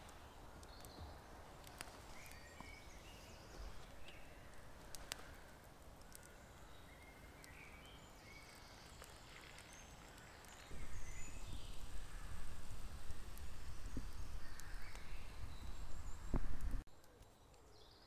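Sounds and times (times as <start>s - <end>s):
faint bird chirps: 2.0s - 18.0s
small clicks: 3.8s - 6.4s.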